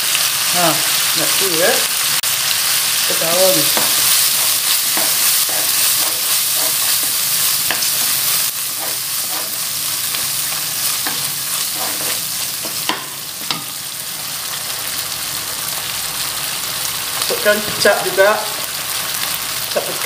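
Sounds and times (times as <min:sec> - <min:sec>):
seafood sizzling in a wok: 0:00.0 - 0:20.0
wooden spatula scraping a pan: 0:03.6 - 0:13.0.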